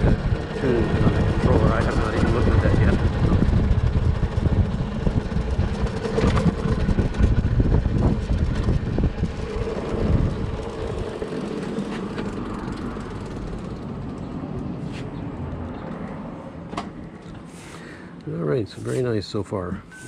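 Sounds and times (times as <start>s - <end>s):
wind buffeting microphone: 0.0s - 14.8s
electric motorbike road noise: 0.0s - 18.4s.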